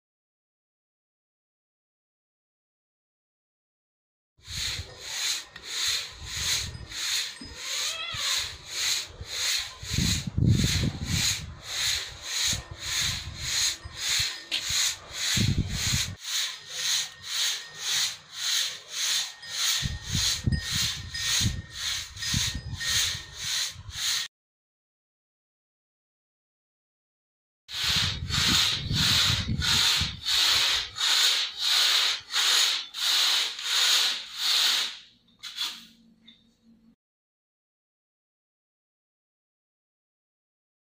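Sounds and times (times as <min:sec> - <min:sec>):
grain swishing on a sieve: 0:04.4 - 0:24.3, 0:27.7 - 0:35.0.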